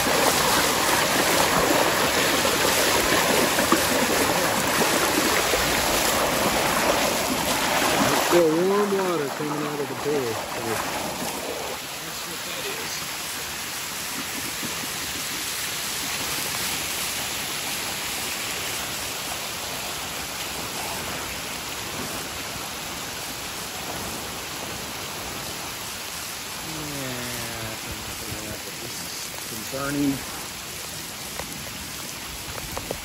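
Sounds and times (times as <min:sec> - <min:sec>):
runoff rushing in gutter: 0:00.0 - 0:16.6
heavy rain on pavement: 0:00.0 - 0:33.0.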